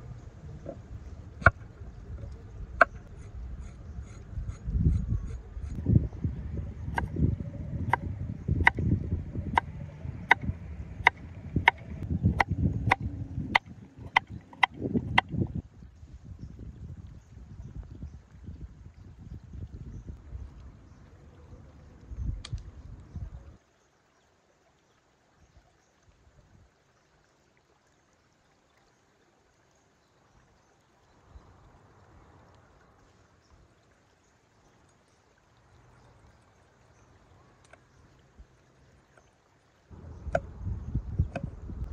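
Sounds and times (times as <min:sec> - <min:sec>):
low rumble: 0:00.0 - 0:15.7, 0:39.9 - 0:41.9
soft low bumps: 0:00.0 - 0:15.7, 0:39.9 - 0:41.9
faint river water running: 0:00.0 - 0:41.9.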